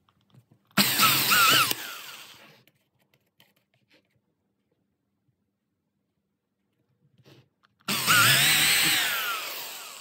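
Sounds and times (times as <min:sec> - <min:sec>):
electric drill drilling into plastic: 0:00.8 - 0:02.4, 0:07.9 - 0:10.0.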